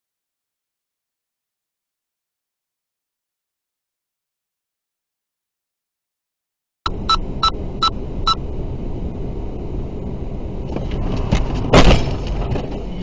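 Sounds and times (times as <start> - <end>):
short beeps: 6.9 - 8.4
road noise inside moving car: 6.9 - 13.0
car collision impact: 10.7 - 12.8.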